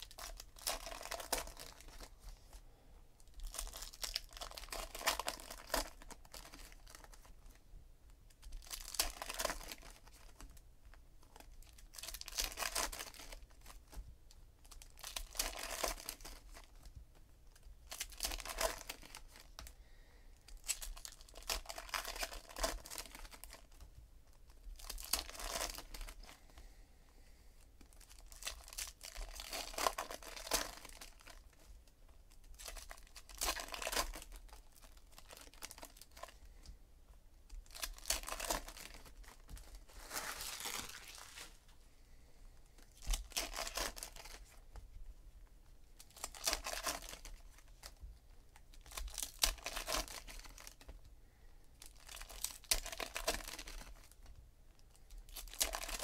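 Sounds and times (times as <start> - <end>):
card pack wrappers crinkling and tearing: 0.0 - 2.4, 3.3 - 7.6, 8.3 - 10.6, 11.2 - 14.0, 14.6 - 19.7, 20.4 - 26.6, 27.8 - 36.4, 37.5 - 41.7, 42.8 - 44.7, 46.0 - 51.0, 51.8 - 56.0
cards shuffling: 37.7 - 41.6.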